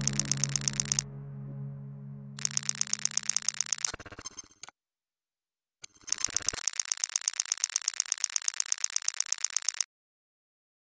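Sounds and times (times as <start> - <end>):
rapid high electronic clicking: 2.4 - 4.0, 6.1 - 9.8.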